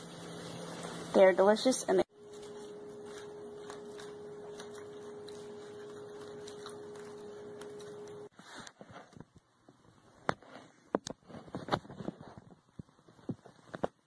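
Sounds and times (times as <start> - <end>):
steady hum tone: 0.0 - 8.3.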